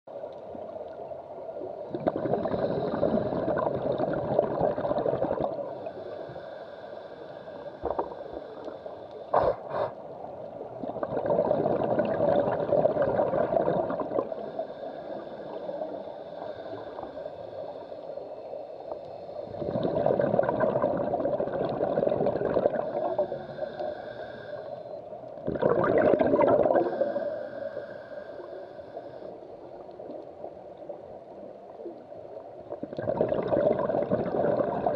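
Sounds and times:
underwater exhaled bubbles gurgling: 0.2s - 34.9s
faint regulator hiss: 5.4s - 10.8s, 13.9s - 19.8s, 22.6s - 25.4s, 26.7s - 32.8s.

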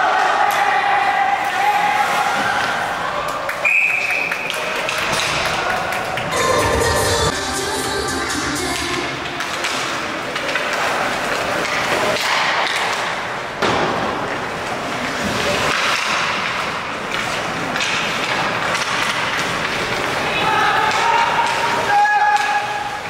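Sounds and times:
hockey sticks and puck clacking: 1.4s - 6.3s, 8.7s - 23.0s
skates scraping ice: 9.2s - 23.0s.

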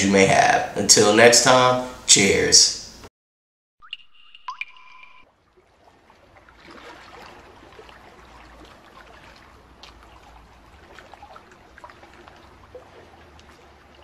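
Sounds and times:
liquid trickling and dripping: 3.8s - 14.0s.

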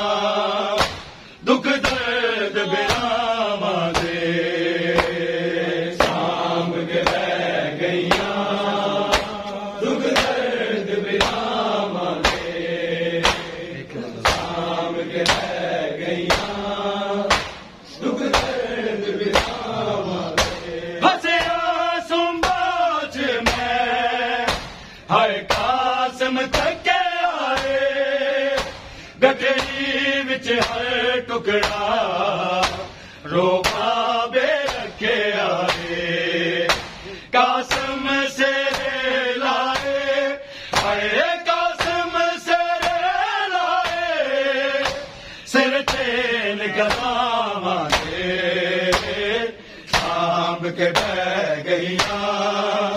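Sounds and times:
men chanting: 0.0s - 52.9s
hand slaps on chest: 0.8s - 1.2s, 3.9s - 4.2s, 4.9s - 5.2s, 6.0s - 6.3s, 7.0s - 7.4s, 8.0s - 8.4s, 9.1s - 10.4s, 11.2s - 11.4s, 12.2s - 12.5s, 13.2s - 13.6s, 14.2s - 14.6s, 15.2s - 15.6s, 16.3s - 16.6s, 17.3s - 17.7s, 18.3s - 18.6s, 19.3s - 19.6s, 20.3s - 20.7s, 22.4s - 22.6s, 23.4s - 23.7s, 24.5s - 24.9s, 25.5s - 25.7s, 27.5s - 27.8s, 28.6s - 28.9s, 29.6s - 29.8s, 31.6s - 31.8s, 32.6s - 32.9s, 33.6s - 33.9s, 34.6s - 34.9s, 35.7s - 35.9s, 36.7s - 37.0s, 38.7s - 38.9s, 39.7s - 40.0s, 40.7s - 41.0s, 41.8s - 42.0s, 43.8s - 44.0s, 44.8s - 45.1s, 45.9s - 46.1s, 46.8s - 47.1s, 47.9s - 48.2s, 48.9s - 49.2s, 49.9s - 50.2s, 50.9s - 51.1s, 52.0s - 52.2s.

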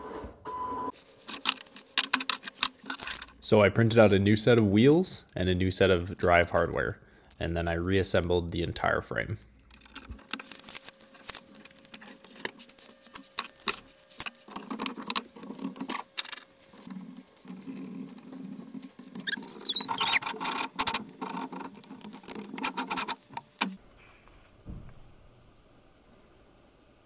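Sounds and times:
plastic parts clicking and clattering: 1.2s - 3.4s, 9.6s - 23.8s
short squeak: 19.2s - 20.2s.

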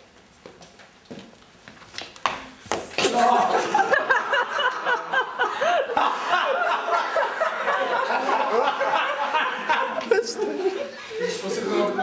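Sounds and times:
group of people laughing: 3.1s - 12.0s.

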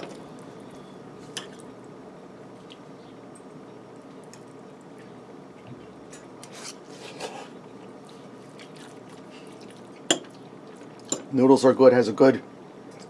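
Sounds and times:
steady low hum: 0.0s - 13.0s
fork scraping on plate: 6.4s - 7.6s
chewing: 8.0s - 11.1s.

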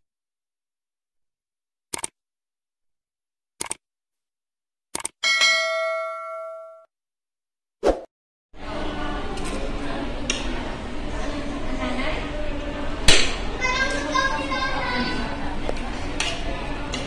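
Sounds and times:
short mouse clicks: 1.9s - 2.2s, 3.6s - 3.8s, 5.0s - 5.2s
bell ding: 5.2s - 6.9s.

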